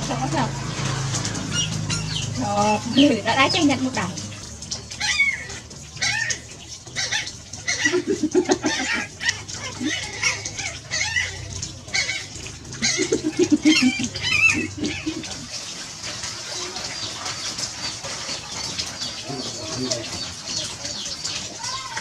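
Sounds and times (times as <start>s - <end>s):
chickens clucking: 5.6s - 15.6s.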